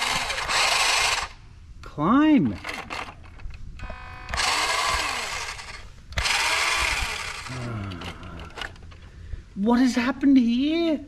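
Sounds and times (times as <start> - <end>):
toy truck electric motor whirring: 0.0 - 1.4, 2.6 - 8.8.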